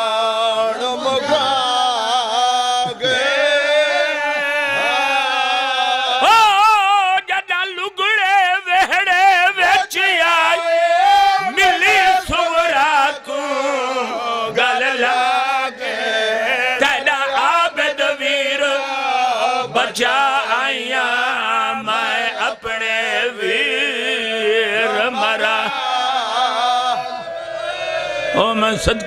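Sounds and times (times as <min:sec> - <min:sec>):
man reciting through microphone: 0:00.0 - 0:26.9, 0:28.3 - 0:29.0
men chanting held notes: 0:09.5 - 0:29.0.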